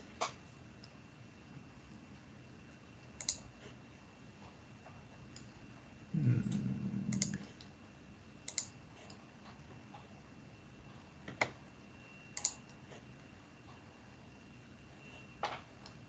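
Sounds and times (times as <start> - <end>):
computer mouse clicks: 3.1 - 3.5, 6.5 - 7.7, 8.4 - 9.2, 12.4 - 12.8
faint steady high tone: 11.7 - 16.0.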